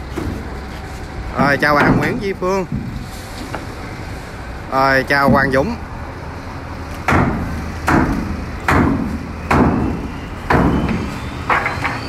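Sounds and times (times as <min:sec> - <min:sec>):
heavy wooden knocks: 0:01.3 - 0:03.0, 0:05.2 - 0:05.7, 0:07.1 - 0:12.0.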